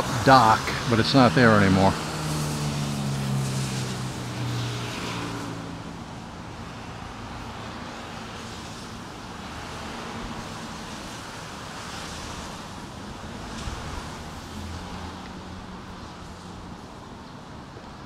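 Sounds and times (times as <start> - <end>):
traffic on wet road: 0.0 - 18.0
vehicle engine hum: 0.0 - 18.0.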